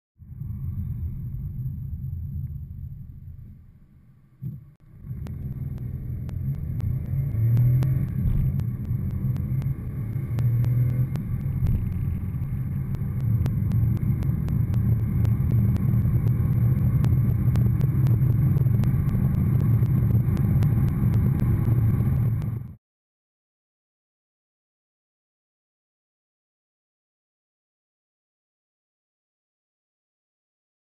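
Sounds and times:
car engine accelerating: 4.4s - 22.8s.

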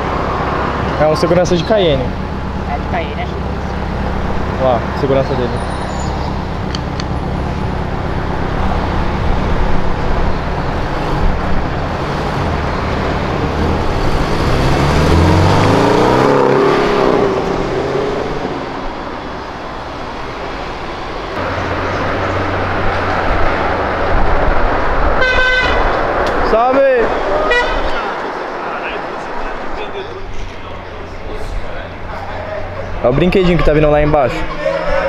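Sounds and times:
car engine accelerating: 0.0s - 35.0s
traffic noise: 0.0s - 35.0s.

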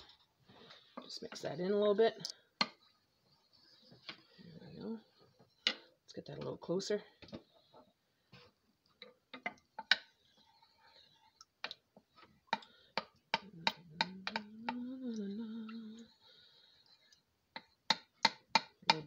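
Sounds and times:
person humming: 13.4s - 16.1s.

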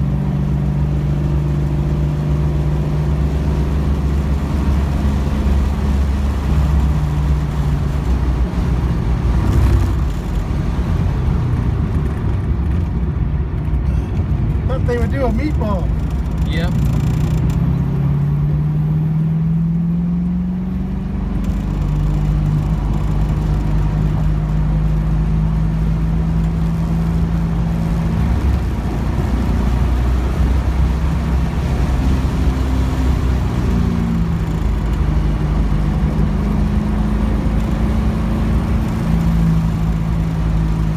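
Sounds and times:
car engine from inside cabin: 0.0s - 40.9s.

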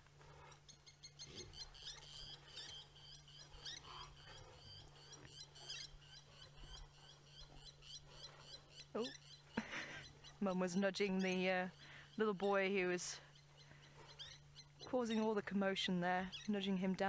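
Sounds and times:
lapwing alarm calls: 0.4s - 15.5s, 16.2s - 16.9s.

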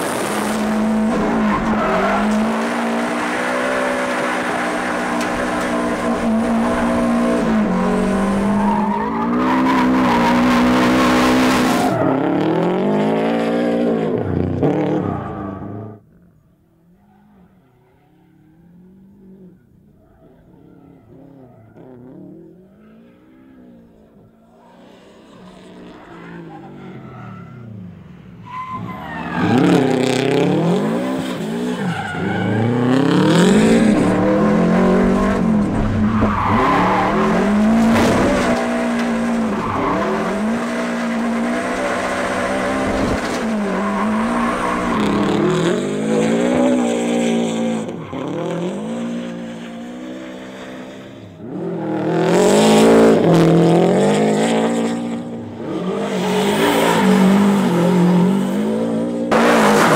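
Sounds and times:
tyres skidding on loose surface: 0.0s - 12.6s, 28.4s - 50.8s, 55.6s - 59.9s
rally car engine revving hard: 0.0s - 16.0s, 29.3s - 59.9s.

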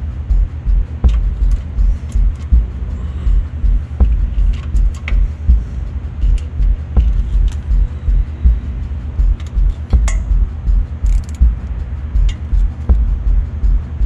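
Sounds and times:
loud uneven low rumble: 0.0s - 14.0s
ratchet wrench tightening bolts: 1.0s - 8.4s, 9.0s - 14.0s
light metal clicks: 9.2s - 13.0s.

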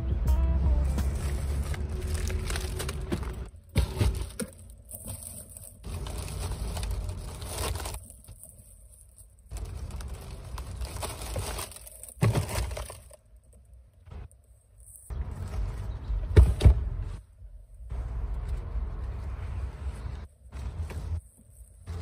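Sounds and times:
plastic bag rustling: 0.8s - 13.2s.

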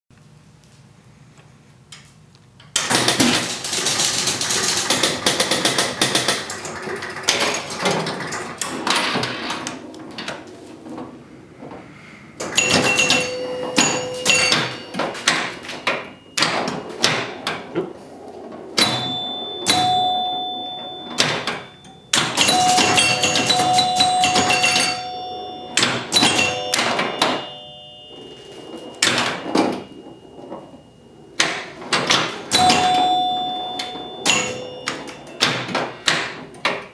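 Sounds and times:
rattle of mechanical clacks: 2.6s - 36.9s
pinball flippers and bumpers knocking: 2.7s - 36.9s
chime bells ringing: 12.5s - 17.1s, 18.8s - 31.4s, 32.4s - 35.9s.

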